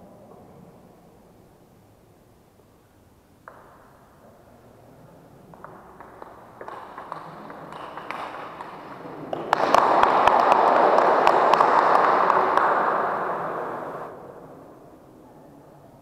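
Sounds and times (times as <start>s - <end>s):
table tennis ball clicking: 5.6s - 10.2s
spectators clapping: 6.0s - 14.1s.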